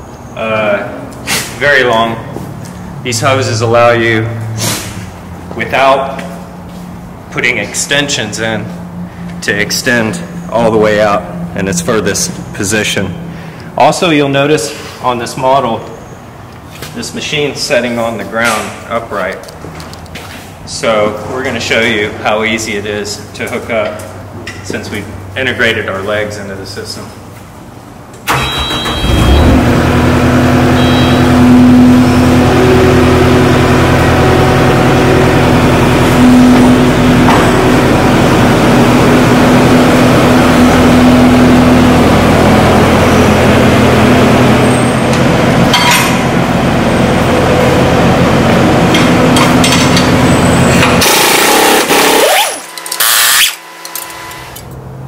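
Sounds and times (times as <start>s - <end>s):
short high beeps: 28.3s - 29.5s, 30.8s - 32.2s
skid steer engine running: 28.3s - 54.8s
rising and falling squeal: 30.6s - 33.3s.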